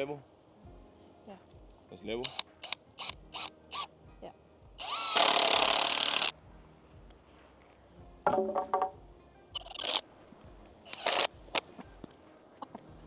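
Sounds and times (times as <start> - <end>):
power drill driving a screw: 2.3 - 3.9, 4.8 - 6.3, 9.6 - 10.0, 10.9 - 11.3.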